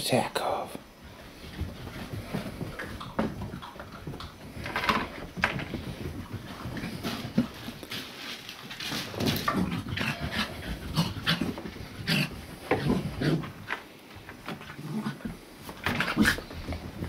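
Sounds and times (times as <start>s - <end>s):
puppy vocal sounds: 9.2s - 13.7s.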